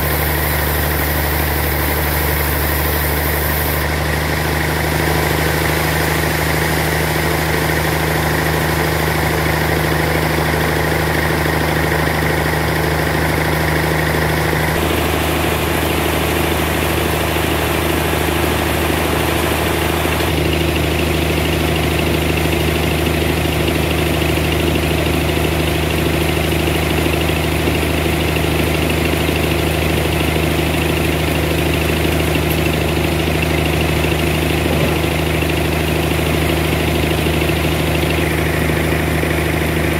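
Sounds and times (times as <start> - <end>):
band sawmill humming: 0.0 - 20.5, 31.6 - 39.9.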